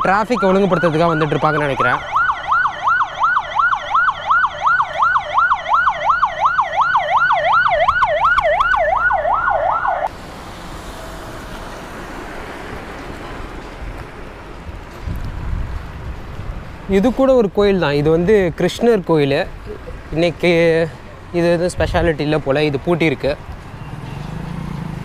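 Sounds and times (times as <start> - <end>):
police siren wailing: 0.0 - 10.1
road noise hiss: 10.1 - 25.0.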